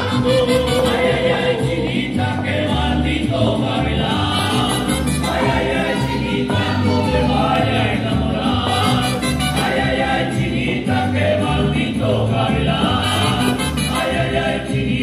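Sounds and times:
folk dance music: 0:00.0 - 0:15.0
voices singing together: 0:00.0 - 0:15.0.

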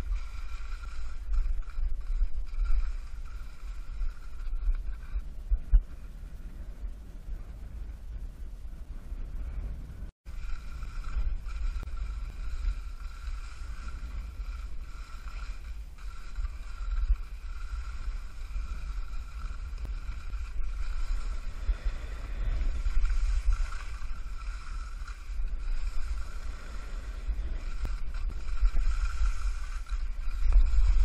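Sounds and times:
skis hissing on snow: 0:00.0 - 0:05.1, 0:10.3 - 0:31.0
wind buffeting microphone: 0:00.0 - 0:31.0.

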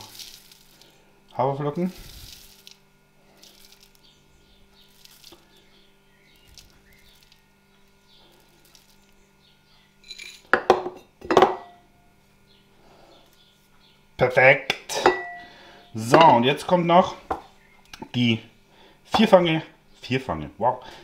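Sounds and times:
oats pouring into plastic bowl: 0:00.0 - 0:01.0, 0:01.8 - 0:04.0, 0:04.9 - 0:05.6, 0:06.4 - 0:07.4, 0:08.4 - 0:09.1
glass jar clattering knocks: 0:10.1 - 0:11.8.

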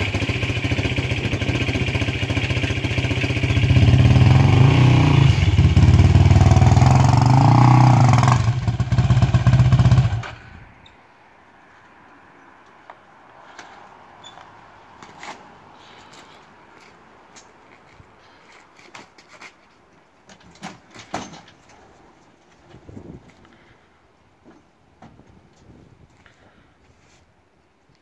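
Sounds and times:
atv engine revving: 0:00.0 - 0:10.6.

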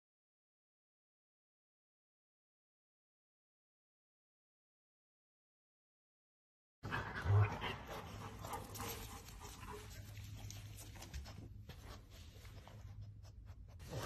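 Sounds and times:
dog panting: 0:06.9 - 0:14.0.

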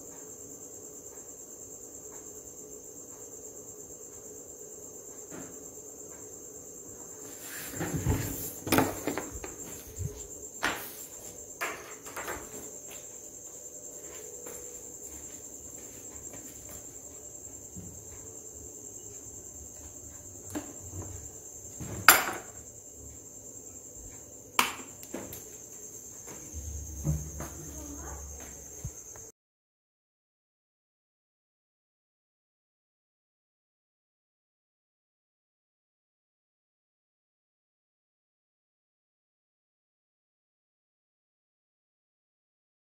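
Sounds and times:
insect trill: 0:00.0 - 0:29.3
knocks and light clatters: 0:07.6 - 0:13.1, 0:26.2 - 0:29.0.

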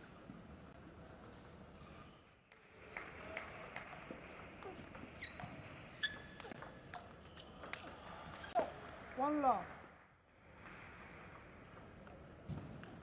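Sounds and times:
short squeaks: 0:07.2 - 0:07.6.

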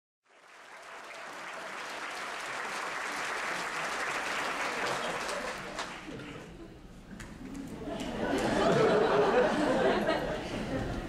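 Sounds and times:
audience applauding: 0:00.2 - 0:06.5.

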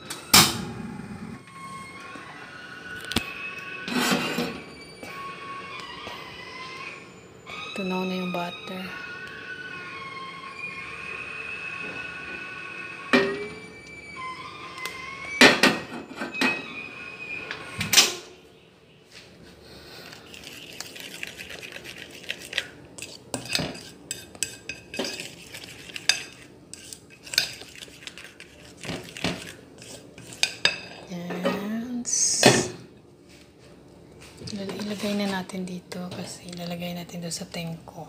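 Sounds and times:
metal spoon scraping a mixing bowl: 0:20.0 - 0:31.7, 0:34.5 - 0:37.4.

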